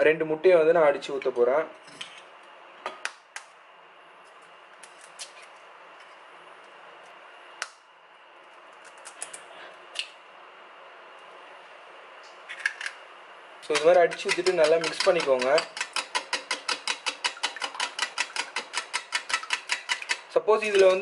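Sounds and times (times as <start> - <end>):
spoon tapping eggshell and bowl: 13.8 - 20.2.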